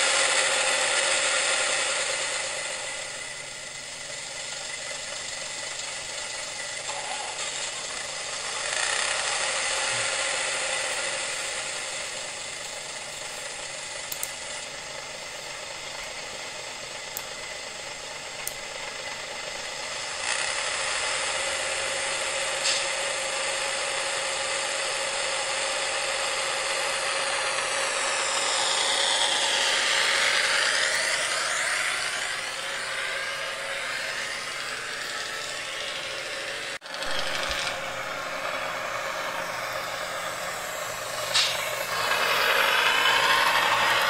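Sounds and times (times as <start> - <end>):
thin engine drone from speaker: 6.8 - 12.4.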